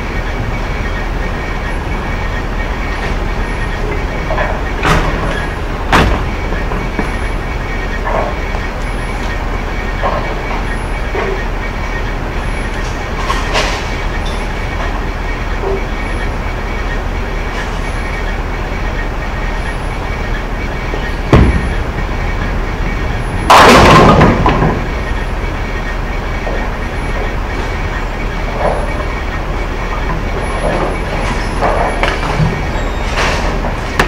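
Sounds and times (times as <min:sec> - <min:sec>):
rumble of bowling alley machinery: 0:00.0 - 0:34.0
bowling pins crashing: 0:21.2 - 0:22.1, 0:23.2 - 0:25.2
bowling ball thudding onto lane: 0:21.3 - 0:21.8.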